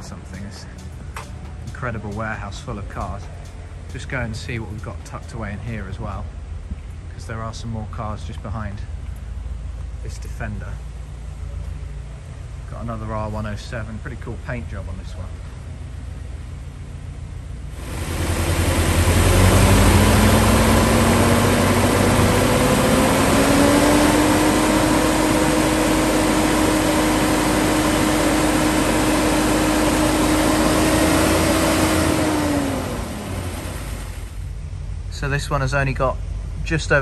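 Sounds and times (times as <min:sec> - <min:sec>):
engine whine: 0:00.0 - 0:37.0
car engine running: 0:14.8 - 0:35.1.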